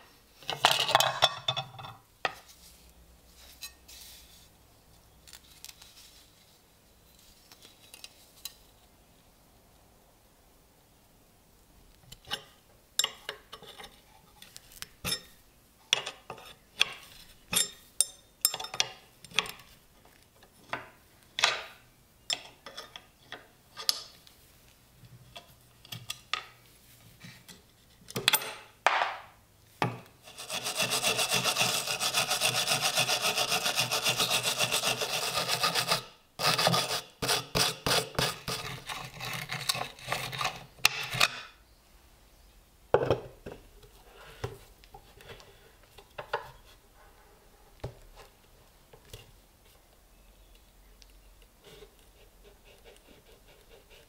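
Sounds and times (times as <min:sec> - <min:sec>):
grating metal rasp: 0:30.2 - 0:40.6.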